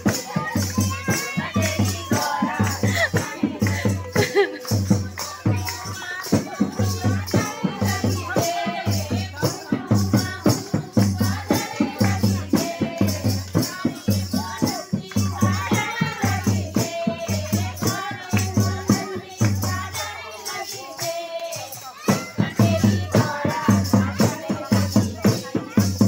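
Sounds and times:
hand clapping: 0.0s - 7.5s
shaken rattle percussion: 0.0s - 26.0s
steady drum beat: 0.0s - 26.0s
women singing devotional song: 0.0s - 26.0s.

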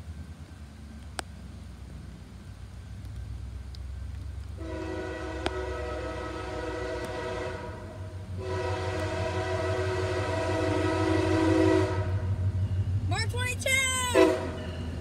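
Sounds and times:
low rumble of train: 0.0s - 15.0s
train air horn blasts: 4.6s - 12.4s, 14.0s - 14.8s.

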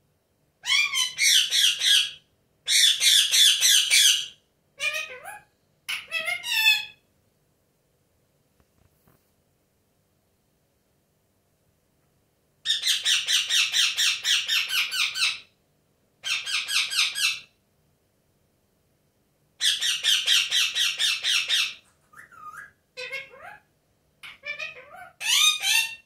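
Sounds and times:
parakeet screeching: 0.6s - 7.0s, 12.7s - 15.5s, 16.2s - 17.5s, 19.6s - 26.0s
parakeet warbling chatter: 0.6s - 7.0s, 16.2s - 17.5s, 19.6s - 26.0s.

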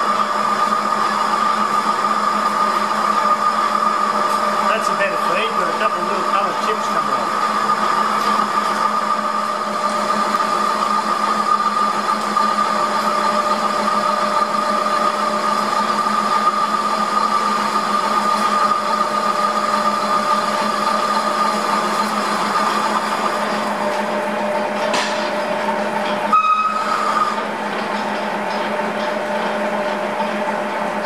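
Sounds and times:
lathe machine hum: 0.0s - 31.0s.

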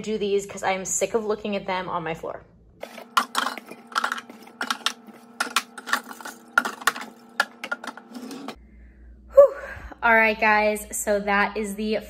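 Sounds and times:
drink cans clinking in drawer: 2.8s - 8.6s.

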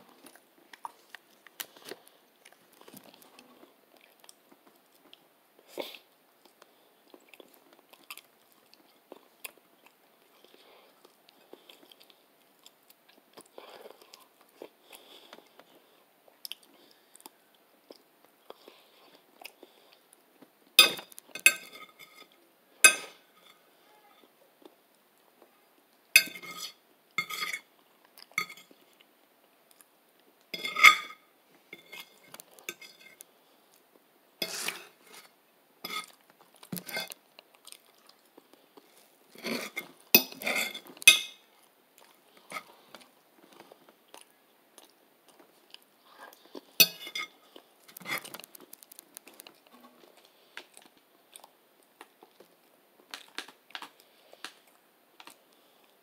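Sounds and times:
soft chewing: 0.0s - 56.0s
fork clinking and scraping on plate: 20.8s - 22.3s, 22.9s - 23.6s, 26.2s - 27.7s, 28.4s - 28.7s, 30.6s - 33.2s, 34.4s - 36.2s, 39.4s - 41.4s, 46.8s - 47.3s.

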